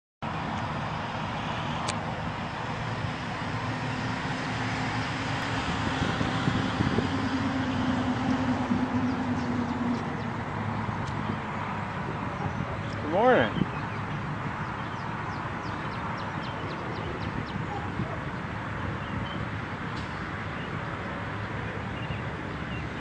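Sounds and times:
engine running with low hum: 0.2s - 23.0s.

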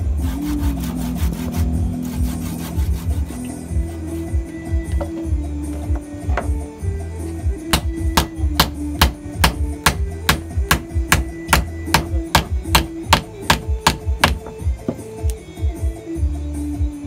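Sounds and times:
mallet knocking wooden handle: 7.7s - 15.0s.

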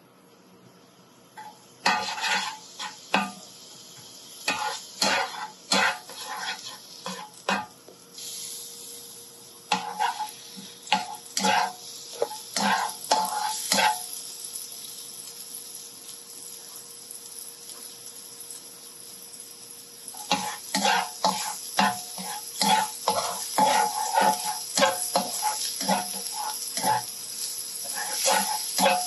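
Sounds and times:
low sizzle: 0.0s - 29.0s
spatula scraping a wok: 1.4s - 3.5s, 4.4s - 8.7s, 9.7s - 14.2s, 20.1s - 29.0s.

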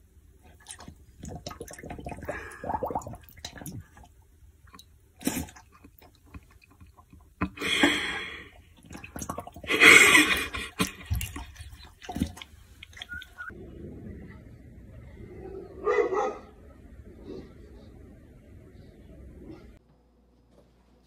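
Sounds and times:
dog lapping water from metal bowl: 0.5s - 4.1s, 8.6s - 13.5s.

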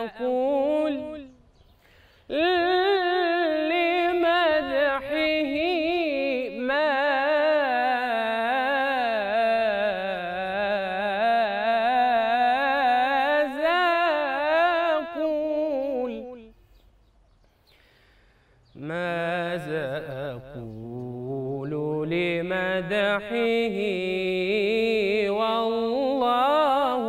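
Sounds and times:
man singing unaccompanied: 0.0s - 1.7s, 2.3s - 16.6s, 18.6s - 27.0s
short breaths: 1.6s - 2.3s, 16.6s - 18.8s.

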